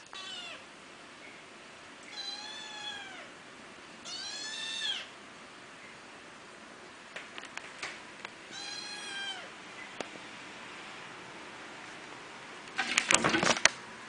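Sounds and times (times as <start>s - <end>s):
kitten meowing: 0.0s - 0.6s, 2.1s - 3.3s, 4.0s - 5.1s, 8.5s - 9.5s.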